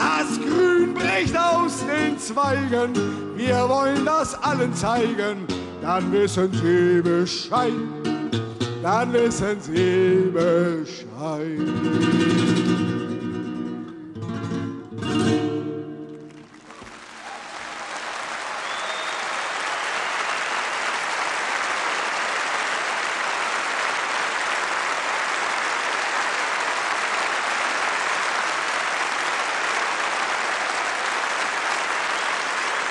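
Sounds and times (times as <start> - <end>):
acoustic guitar chords: 0.0 - 16.4
audience applause: 16.1 - 32.9.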